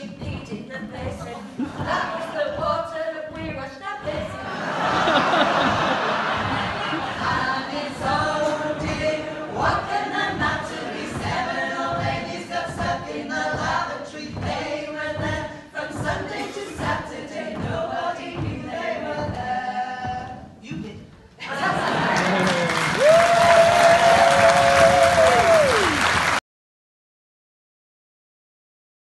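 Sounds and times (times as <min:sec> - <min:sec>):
women singing a cappella: 0:00.0 - 0:21.8.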